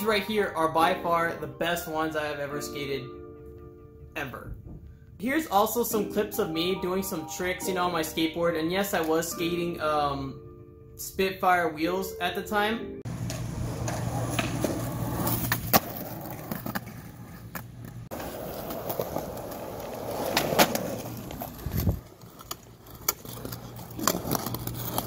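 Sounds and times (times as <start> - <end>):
skateboard clacking on ground: 13.1 - 25.0
skateboard wheels rolling on concrete: 13.1 - 25.0.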